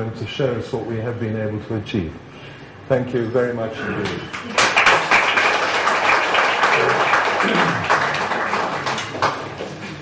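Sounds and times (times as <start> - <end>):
audience applauding: 4.3 - 9.8.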